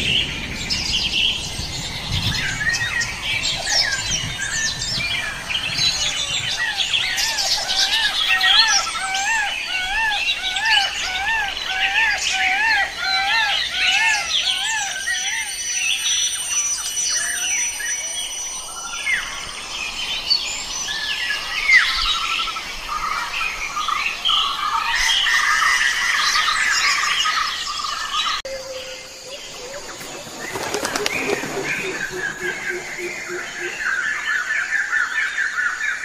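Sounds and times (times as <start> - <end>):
small birds chirping: 0.0 - 36.0
rapid fluttering rattle: 29.9 - 32.1.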